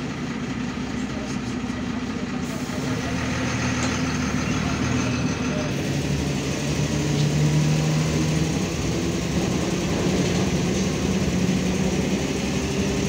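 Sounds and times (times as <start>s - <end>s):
bus engine drone: 0.0s - 13.0s.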